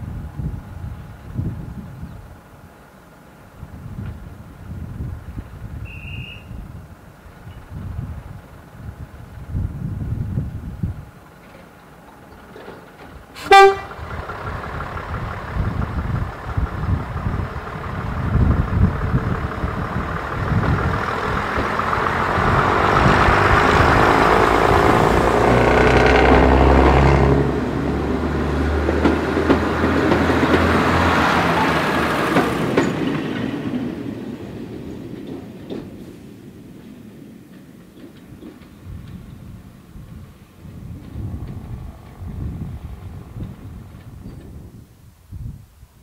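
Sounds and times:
train wheels on rails: 0.0 - 45.3
diesel train engine drone: 0.0 - 46.0
train horn blast: 13.4 - 14.0.

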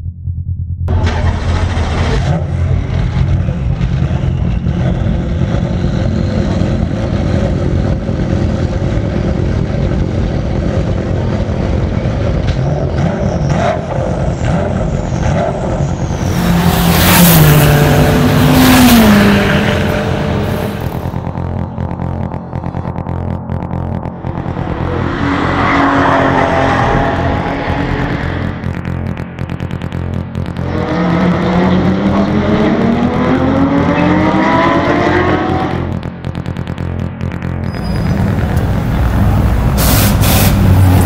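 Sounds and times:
race car engines rumbling: 0.9 - 41.0
race car passing at speed: 16.2 - 21.2.

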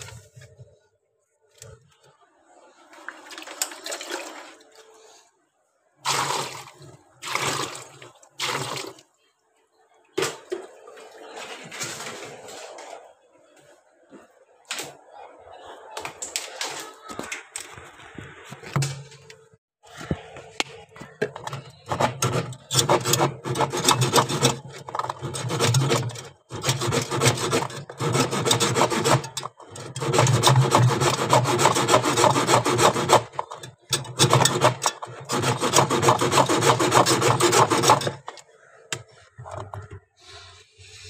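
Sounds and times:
hand scrubbing metal fins: 21.4 - 38.4.

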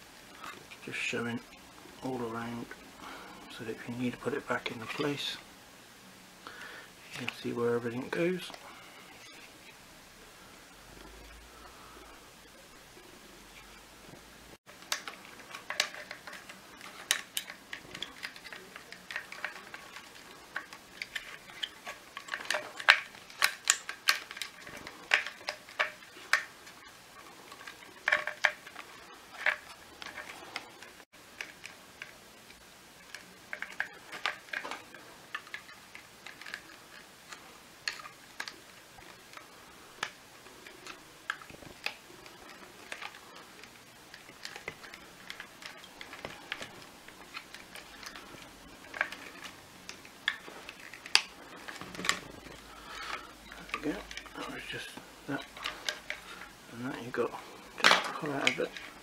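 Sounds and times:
plastic housing clicking and snapping: 57.8 - 58.9.

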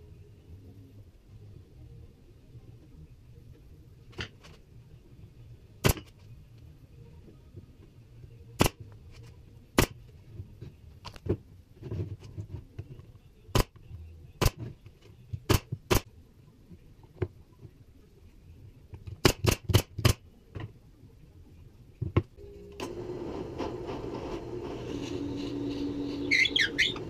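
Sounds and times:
nail gun firing: 19.2 - 20.2.

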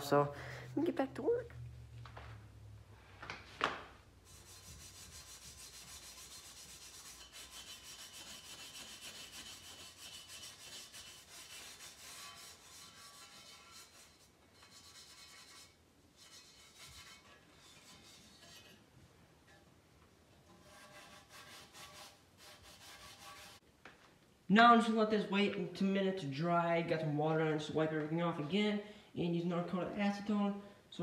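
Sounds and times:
scrubbing rust off metal pipe: 4.2 - 18.9.

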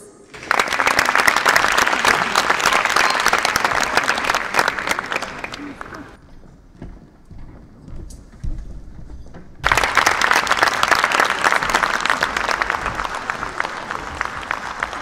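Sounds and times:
audience applauding: 0.3 - 6.2, 9.6 - 15.0.

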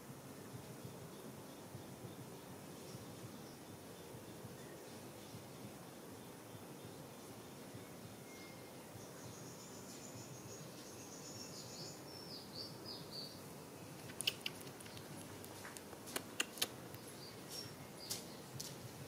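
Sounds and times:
soft sharp clicks: 14.0 - 17.0.

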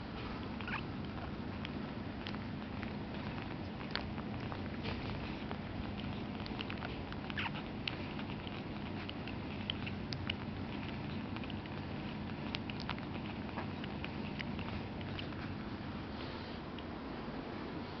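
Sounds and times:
puppies suckling: 0.0 - 18.0
puppy squeaks: 0.6 - 0.9, 7.2 - 8.2.

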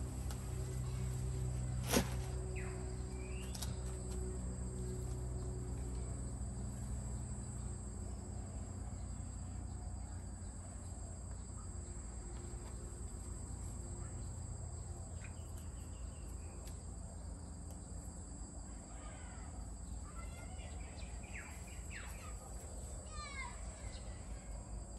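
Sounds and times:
birds chirping: 0.0 - 4.1
low background rumble: 0.0 - 16.5.

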